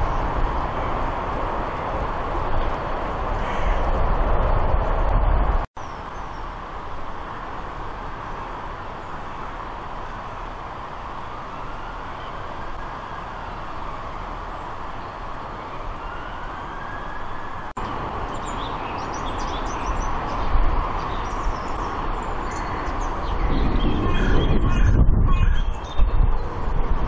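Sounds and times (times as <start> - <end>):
distant traffic: 0.0 - 27.0
rail noise: 0.0 - 27.0
small birds chirping: 17.1 - 26.6.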